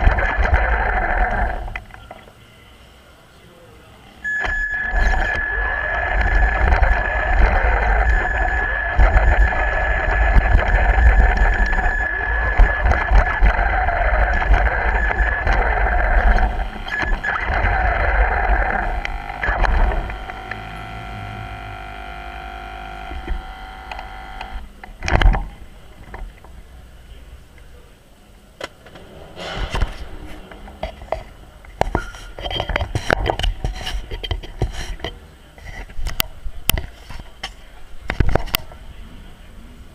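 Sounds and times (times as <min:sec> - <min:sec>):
toy car electric motor whining: 0:00.0 - 0:01.8, 0:04.4 - 0:24.6.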